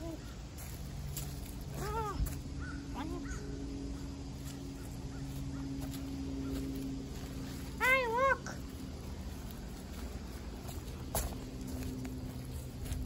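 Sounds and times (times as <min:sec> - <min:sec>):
steady low hum: 0:00.0 - 0:13.0
animal calls: 0:01.7 - 0:04.1.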